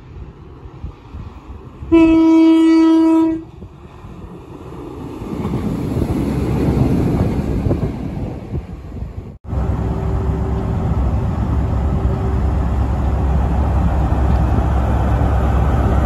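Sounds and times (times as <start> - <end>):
train engines and wheels rumbling: 0.0 - 16.0
train horn: 1.9 - 3.5.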